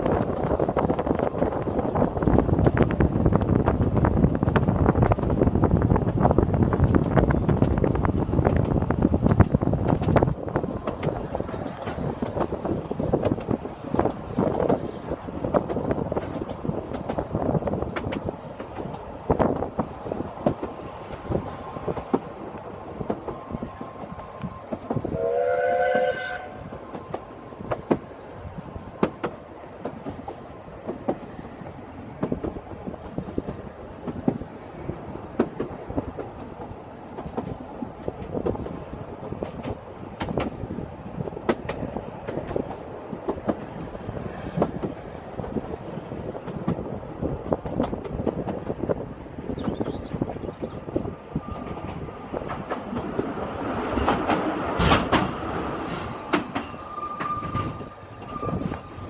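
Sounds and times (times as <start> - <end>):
steam train rumbling: 0.0 - 59.0
wheels clicking over rail joints: 2.2 - 25.2, 28.9 - 49.9, 51.6 - 59.0
steam whistle blowing: 25.2 - 26.6.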